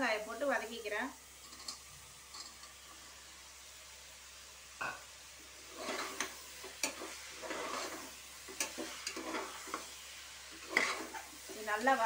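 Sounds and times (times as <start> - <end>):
light sizzle: 0.0 - 12.0
metal spatula scraping pot: 5.6 - 11.7.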